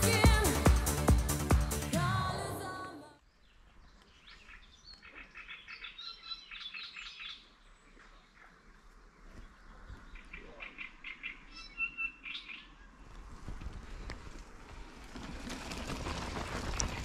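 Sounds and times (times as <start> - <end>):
songbirds chirping: 3.2 - 13.4
bicycle rolling on track: 13.0 - 17.0.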